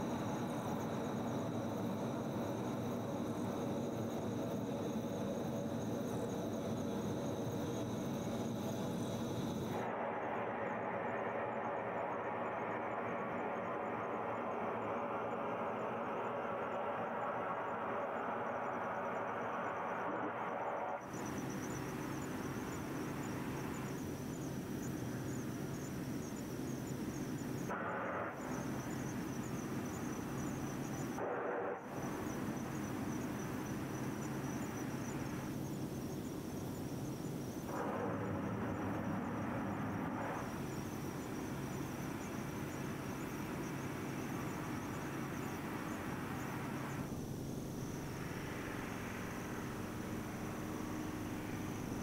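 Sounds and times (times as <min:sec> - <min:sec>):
insects chirping: 0:00.0 - 0:09.9, 0:11.7 - 0:52.0
distant rushing hiss of venting gas: 0:00.0 - 0:10.2, 0:21.0 - 0:52.0.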